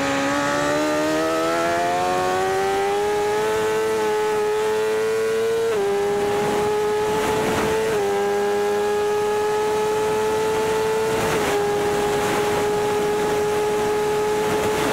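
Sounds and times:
motorcycle engine accelerating: 0.0 - 14.9
wind rush: 5.6 - 8.6, 9.2 - 14.9.

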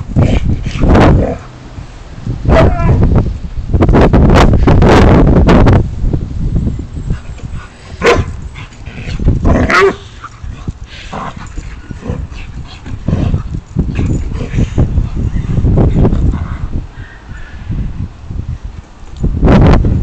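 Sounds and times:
steady low rumble: 0.0 - 20.0
dog barking and yipping: 2.5 - 3.0, 8.0 - 10.4.

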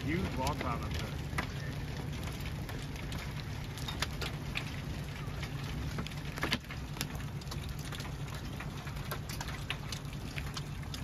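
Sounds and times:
rain and hail hitting vehicle: 0.0 - 11.0.

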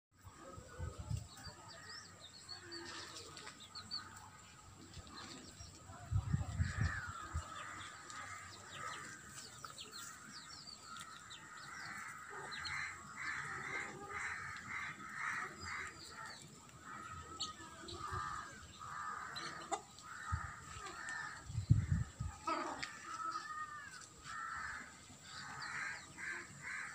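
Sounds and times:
birds chirping and calling: 0.2 - 26.9
low rumble on microphone: 20.1 - 22.5.

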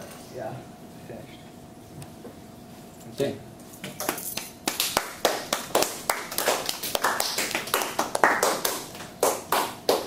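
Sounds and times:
small group clapping: 4.1 - 10.0.

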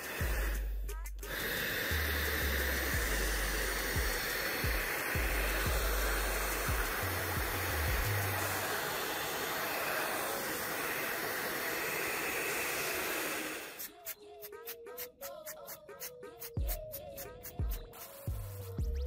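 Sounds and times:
music with steady beat: 0.0 - 8.6, 13.8 - 19.0
hair dryer blowing: 0.0 - 15.2.

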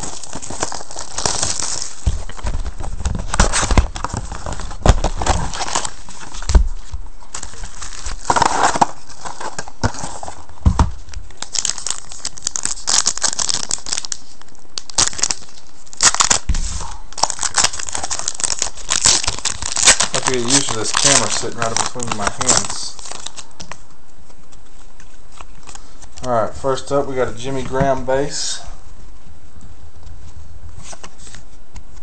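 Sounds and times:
cardboard and wrappers crinkling: 0.0 - 32.0.

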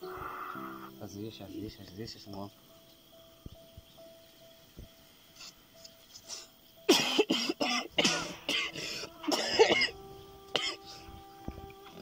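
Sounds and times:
man coughing hard: 6.9 - 10.0, 10.6 - 10.8.

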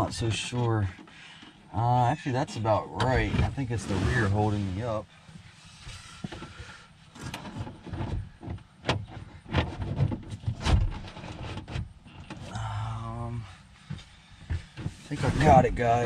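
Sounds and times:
car window glass knocking and scraping: 3.0 - 4.8, 7.2 - 12.5, 13.8 - 16.0.

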